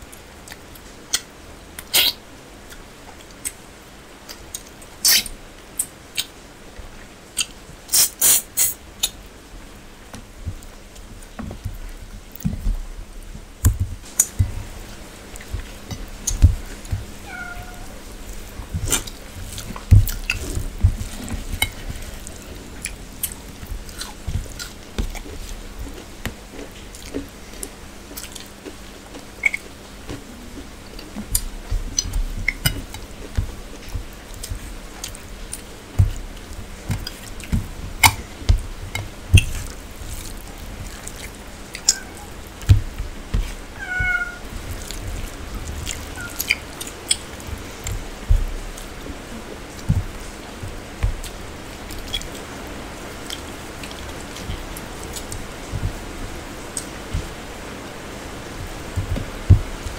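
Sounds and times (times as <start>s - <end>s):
chewing and lip-smacking: 18.0s - 43.7s, 44.5s - 57.4s.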